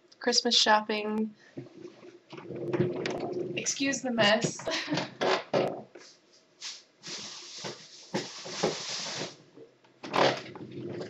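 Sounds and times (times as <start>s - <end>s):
shopping bags rustling: 6.6s - 9.4s.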